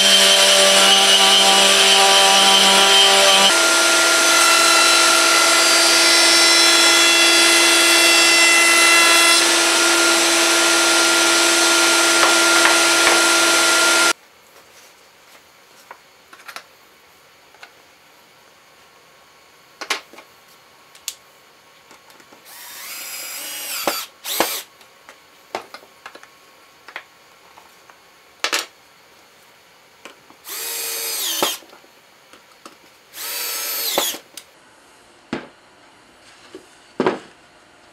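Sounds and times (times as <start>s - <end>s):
cordless drill driving screws: 22.5s - 24.7s, 30.5s - 31.6s, 33.2s - 34.2s.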